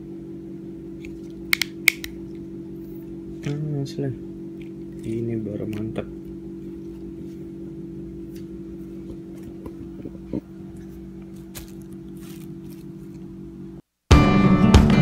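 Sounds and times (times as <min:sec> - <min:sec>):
low hum: 0:00.0 - 0:13.8
sharp click: 0:01.5 - 0:02.2
tripod and plastic packaging rustling: 0:10.7 - 0:13.4.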